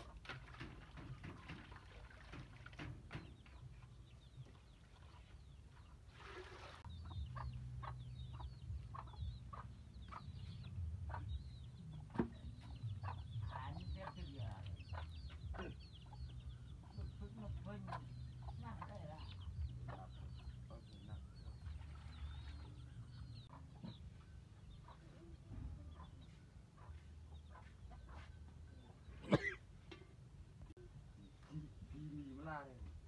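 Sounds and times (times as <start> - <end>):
chickens clucking: 0.0 - 6.2, 6.8 - 32.8
chicks cheeping: 6.9 - 29.2.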